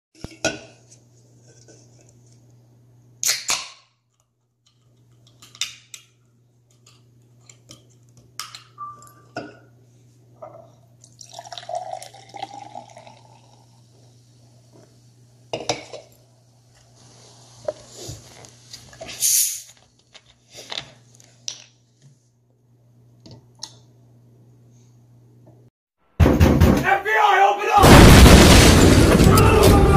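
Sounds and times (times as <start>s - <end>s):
can opening: 19.2s - 19.8s.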